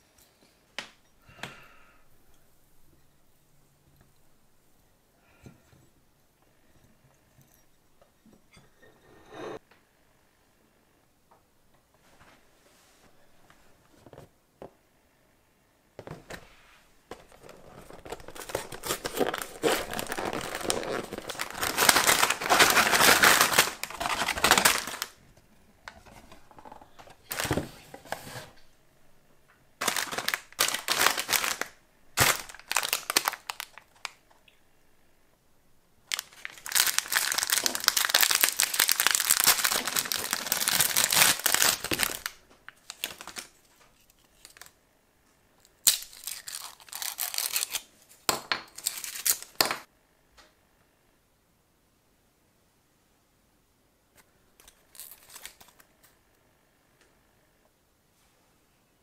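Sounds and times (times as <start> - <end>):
plastic wrappers crinkling: 17.1 - 25.2, 25.9 - 28.4, 29.8 - 34.2, 36.0 - 44.8, 45.7 - 49.9, 54.6 - 56.0.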